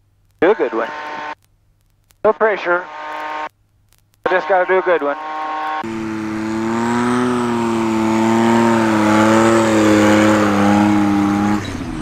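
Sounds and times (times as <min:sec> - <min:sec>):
propeller rushing: 0:04.3 - 0:12.0.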